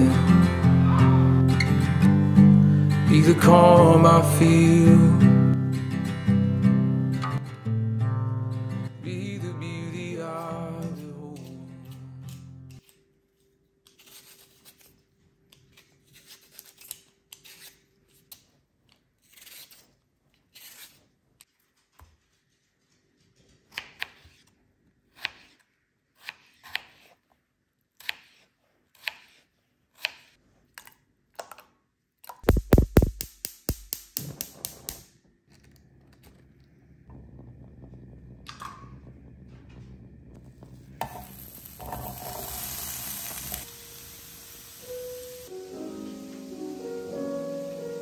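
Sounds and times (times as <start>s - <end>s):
potato peeling scrapes: 11.3s - 21.5s, 28.0s - 30.7s.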